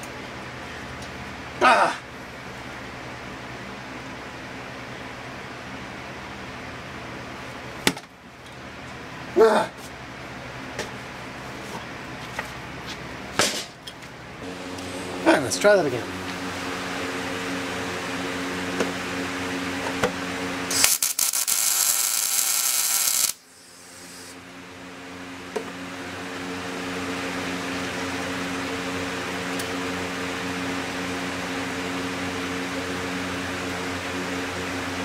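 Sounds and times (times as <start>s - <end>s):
steady low hum: 0.0s - 35.0s
welder arc crackling and hissing: 14.4s - 18.0s, 20.6s - 24.4s.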